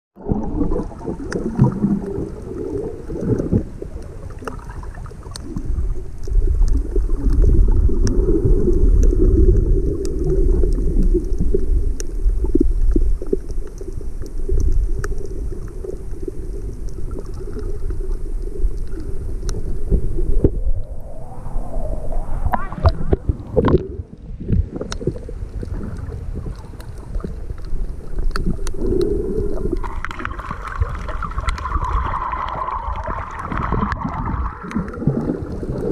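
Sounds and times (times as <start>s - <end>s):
underwater water rushing: 0.2s - 35.9s
faint clicks: 1.2s - 20.6s, 22.8s - 35.9s.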